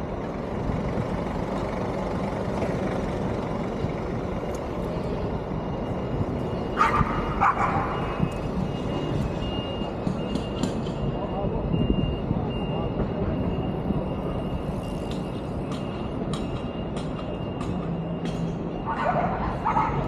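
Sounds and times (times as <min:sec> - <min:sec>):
bicycle riding rushing noise: 0:13.8 - 0:16.2.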